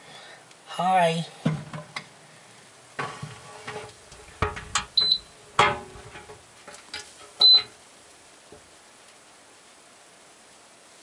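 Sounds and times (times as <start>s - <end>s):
low steady hiss: 0.0s - 11.0s
dishes knocking and clanking: 3.0s - 7.8s
high beeps: 5.0s - 5.3s, 7.4s - 7.7s.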